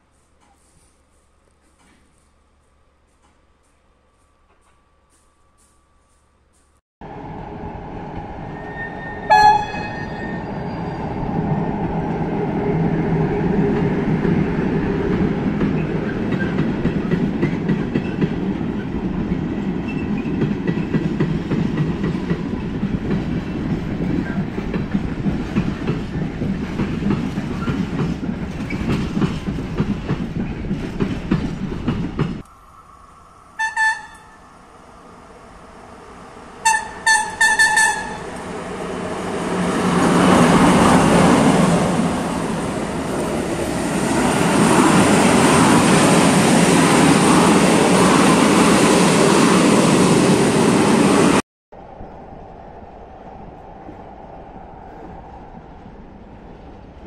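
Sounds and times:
freight train rumbling past: 7.0s - 57.0s
locomotive horn: 8.6s - 10.6s, 33.6s - 34.5s, 36.6s - 38.4s.

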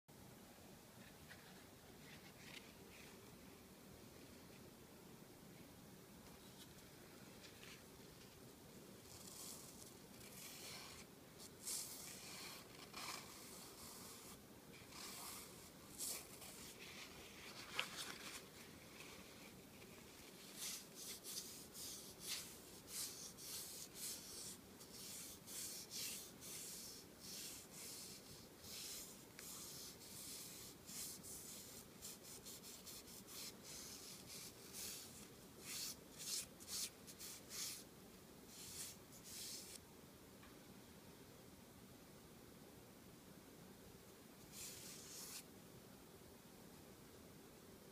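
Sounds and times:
paper towel rubbing wood: 9.1s - 37.8s, 38.5s - 39.8s.

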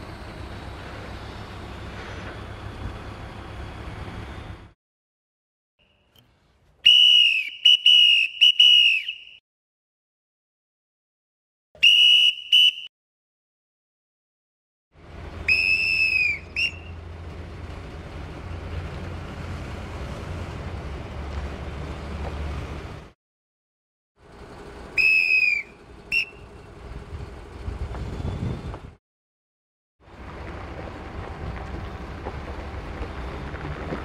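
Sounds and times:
crane engine rumbling: 0.0s - 4.8s, 15.0s - 23.2s, 24.2s - 29.0s, 30.0s - 34.0s
whistle blasts: 6.8s - 9.4s, 11.8s - 12.9s, 15.4s - 17.0s, 25.0s - 26.6s.

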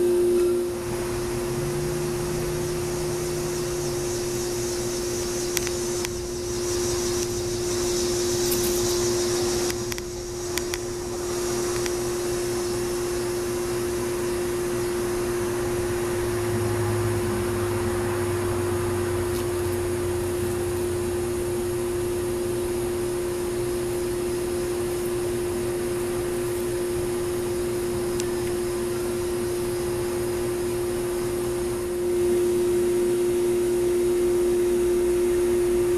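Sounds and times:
high hissing buzz: 0.0s - 35.9s
machine hum: 0.0s - 35.9s
sharp clicks: 9.6s - 10.9s.

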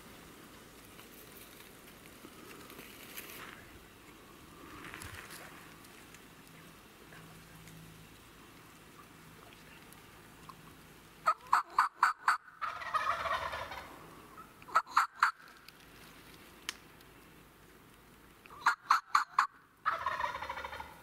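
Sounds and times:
turkey yelps: 11.2s - 15.5s, 18.5s - 21.0s
turkey gobbling: 11.2s - 15.6s, 18.5s - 21.0s.

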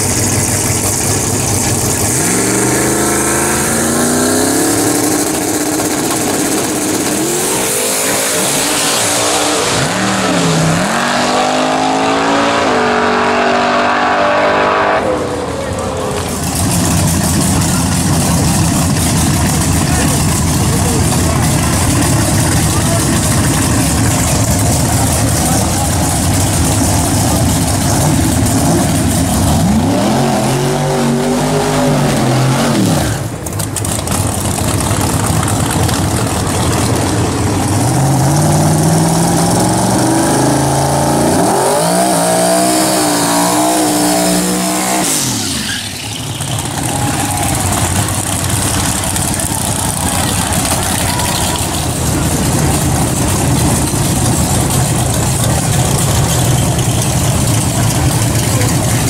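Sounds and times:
car engine revving: 0.0s - 59.0s
loud engine rumble: 0.0s - 59.0s.

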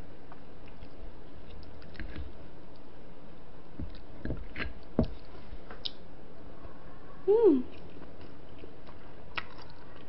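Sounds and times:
person chewing food: 0.3s - 3.0s, 7.7s - 10.0s.

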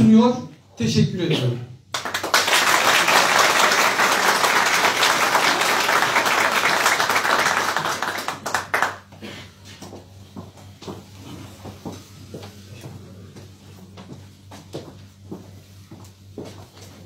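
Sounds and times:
audience applauding: 1.9s - 9.2s.

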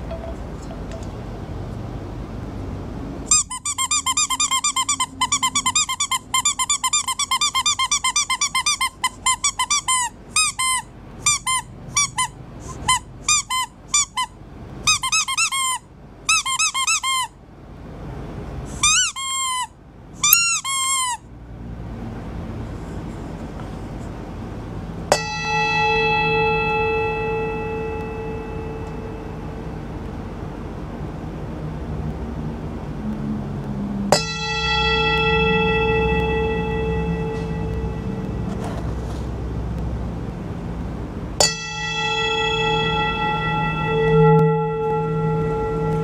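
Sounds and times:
squeak toy squeaking: 3.3s - 17.4s, 18.7s - 21.2s.

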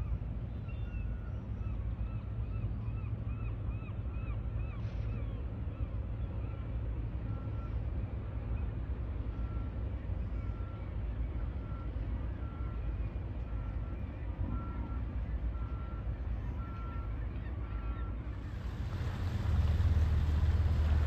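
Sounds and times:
vehicle backup alarm beeping: 13.5s - 17.9s
low rumble: 18.4s - 21.0s.

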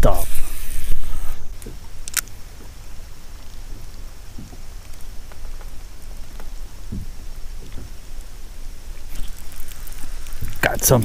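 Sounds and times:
faint ticks: 3.4s - 8.3s, 9.0s - 11.0s
water lapping and dripping: 3.7s - 11.0s.

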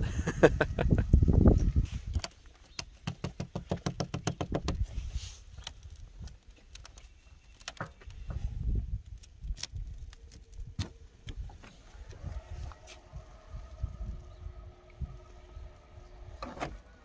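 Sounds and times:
ice cracking and clicking: 9.0s - 10.9s.

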